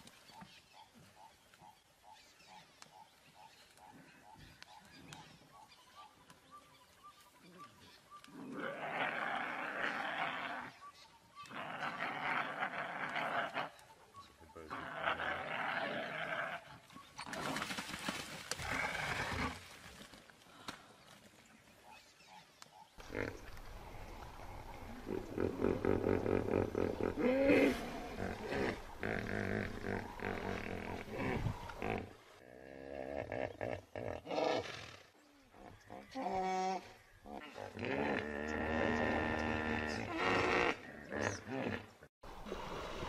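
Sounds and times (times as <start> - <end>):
wild animal roars and growls: 14.7 - 17.6, 23.0 - 34.8, 35.5 - 43.0.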